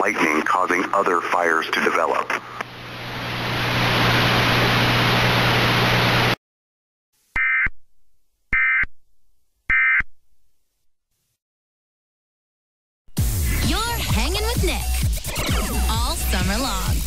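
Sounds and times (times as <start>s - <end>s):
radio static with hum: 0.0s - 6.4s.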